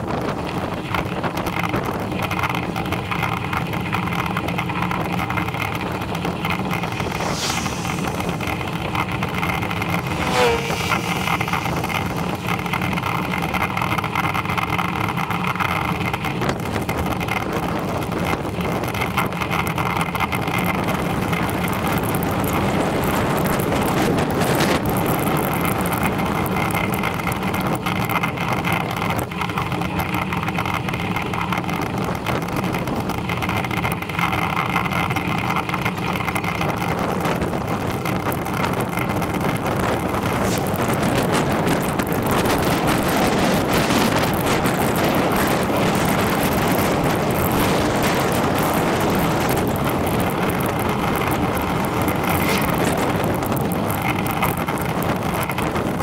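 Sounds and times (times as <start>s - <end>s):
wind and road noise: 0.0s - 56.0s
short squeak: 10.1s - 12.0s.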